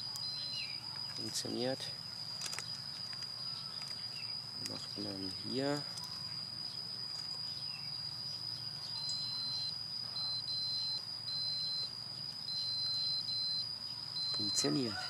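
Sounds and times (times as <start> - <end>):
multimeter beeping: 0.0 - 1.7, 7.1 - 15.0
steady high whine: 0.0 - 15.0.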